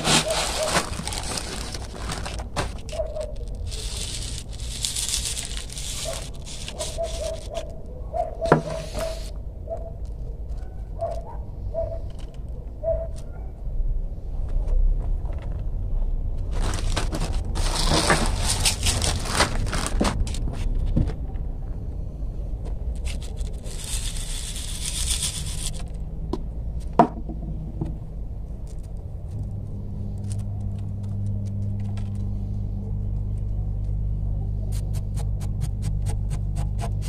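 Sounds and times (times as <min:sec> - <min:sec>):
gravel scraping in plastic colander: 0:00.0 - 0:07.7, 0:16.5 - 0:20.5, 0:23.0 - 0:26.0.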